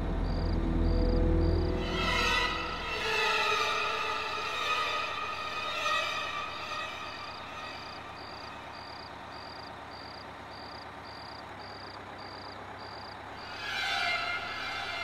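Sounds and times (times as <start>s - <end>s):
low steady hum: 0.0s - 10.8s
cricket chirping: 0.0s - 15.0s.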